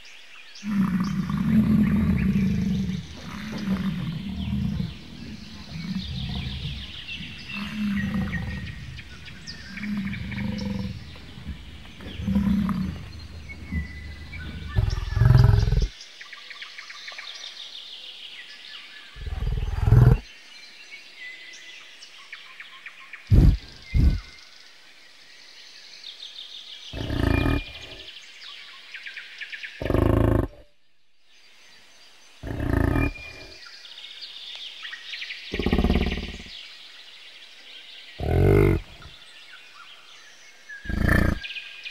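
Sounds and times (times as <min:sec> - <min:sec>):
birds chirping: 0:00.0 - 0:41.9
bison grunting and bellowing: 0:00.6 - 0:15.9, 0:19.2 - 0:20.2, 0:23.3 - 0:24.3, 0:26.9 - 0:28.2, 0:29.8 - 0:30.7, 0:32.4 - 0:33.7, 0:35.5 - 0:36.5, 0:38.2 - 0:39.2, 0:40.8 - 0:41.5.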